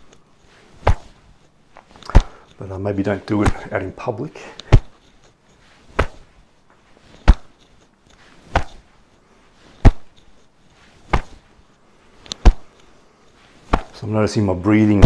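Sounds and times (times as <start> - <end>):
hands slapping shoulders: 0.8 - 2.6, 3.4 - 3.8, 4.6 - 5.1, 5.8 - 6.4, 7.1 - 8.9, 9.7 - 10.3, 10.9 - 11.5, 12.2 - 12.9, 13.6 - 14.0.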